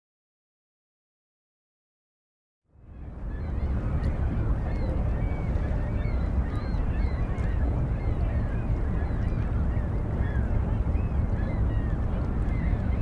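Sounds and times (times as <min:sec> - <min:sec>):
seagulls calling: 0:03.0 - 0:13.0.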